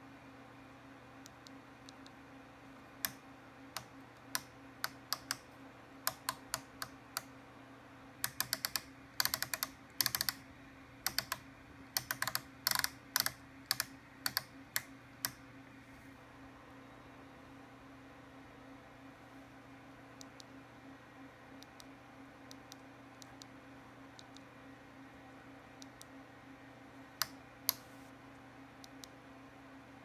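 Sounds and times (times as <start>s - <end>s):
faint electrical hum: 0.0s - 30.0s
rotary knob clicks: 8.2s - 10.4s, 12.0s - 15.4s.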